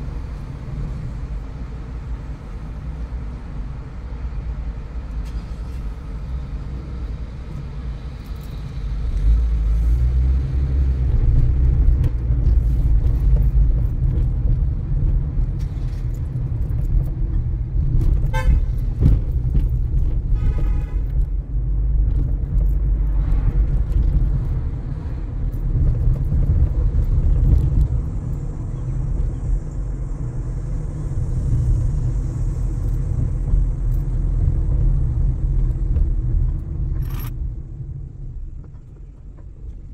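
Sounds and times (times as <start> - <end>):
car road noise on wet road: 0.0 - 39.9
car horn toots: 18.3 - 18.8, 20.3 - 21.2.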